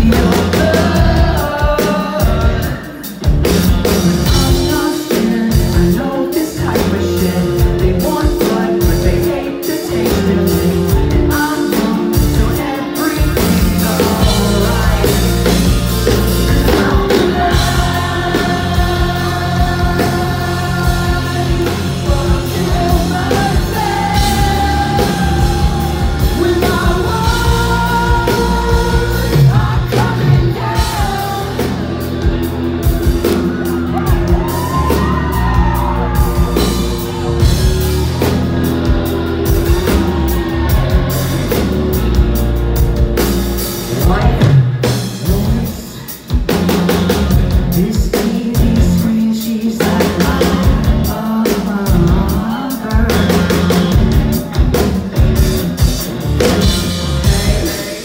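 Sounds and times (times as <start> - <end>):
rock band playing: 0.0 - 58.0
person singing and yelling: 3.8 - 41.6.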